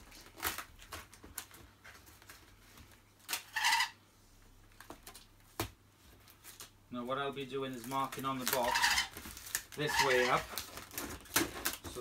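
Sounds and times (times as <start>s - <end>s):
packing tape screeching off tape gun: 3.3s - 4.0s, 8.4s - 11.8s.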